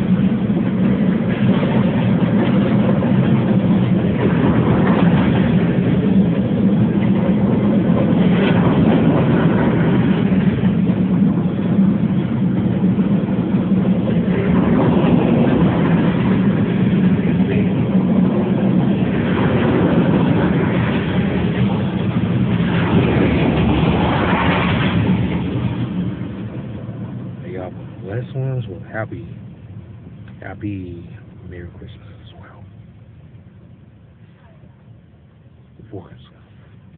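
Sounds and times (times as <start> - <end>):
car road and wind noise: 0.0 - 36.9
freight train rumbling past: 0.0 - 36.9.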